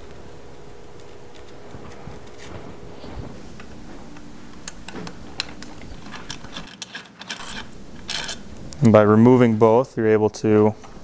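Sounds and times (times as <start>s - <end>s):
allen key clicking on metal screw: 6.0s - 8.4s.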